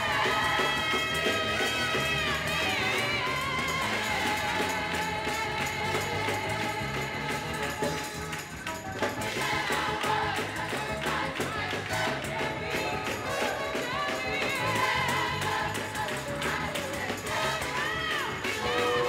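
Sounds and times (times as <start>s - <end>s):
band accompaniment: 0.0s - 19.0s
gospel singers: 0.0s - 19.0s.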